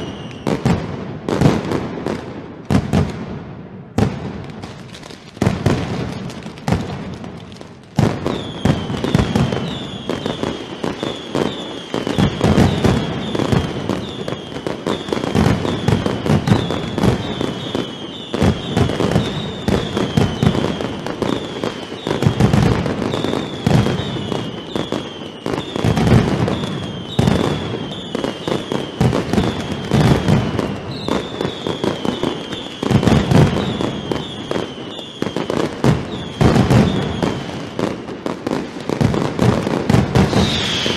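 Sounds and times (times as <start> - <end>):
firecrackers banging: 0.0 - 40.9
high falling whistles: 40.2 - 40.9.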